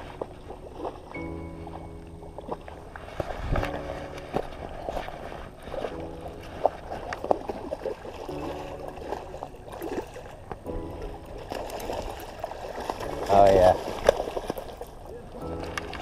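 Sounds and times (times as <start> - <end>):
background music held chord: 0.0 - 16.0.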